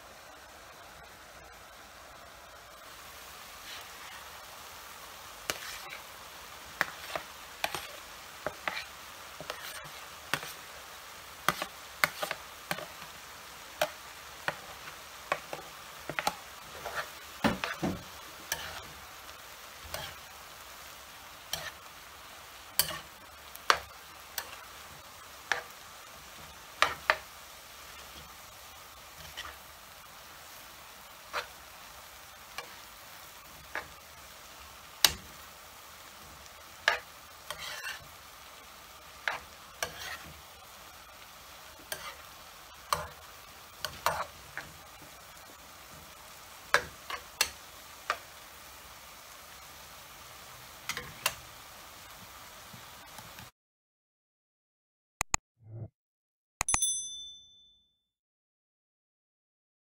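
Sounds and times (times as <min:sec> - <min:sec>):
food sizzling in a frying pan: 0:00.0 - 0:53.5
utensil scraping a pan: 0:03.6 - 0:04.2, 0:05.5 - 0:06.1, 0:06.8 - 0:10.6, 0:15.3 - 0:19.0, 0:19.8 - 0:20.2, 0:21.5 - 0:21.9, 0:22.8 - 0:23.8, 0:29.2 - 0:29.7, 0:31.3 - 0:31.6, 0:36.8 - 0:38.1, 0:39.2 - 0:40.4, 0:41.8 - 0:42.3.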